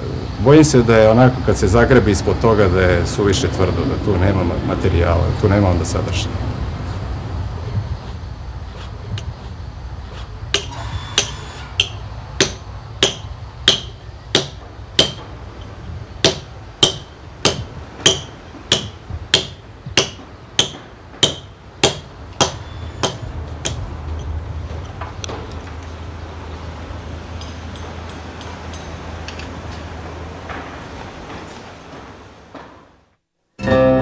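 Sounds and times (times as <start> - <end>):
hammer striking chisel into stone: 10.5 - 15.3, 16.2 - 23.8.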